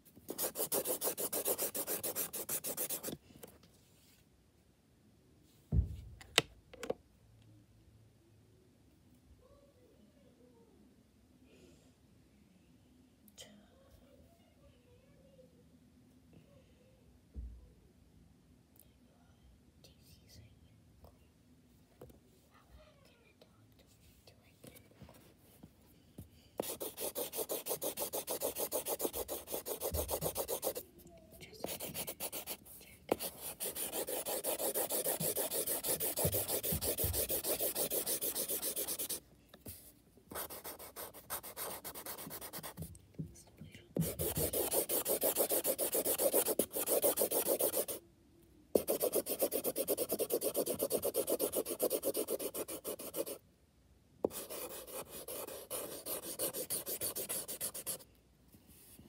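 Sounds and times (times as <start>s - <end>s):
marker scribbling on paper: 0.3s - 3.2s, 26.6s - 30.8s, 31.5s - 42.9s, 44.0s - 48.0s, 48.8s - 53.4s, 54.3s - 58.0s.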